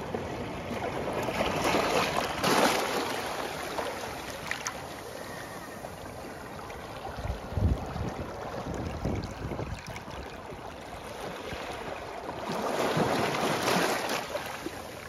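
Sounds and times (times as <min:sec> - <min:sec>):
wind buffeting microphone: 0:07.2 - 0:10.0.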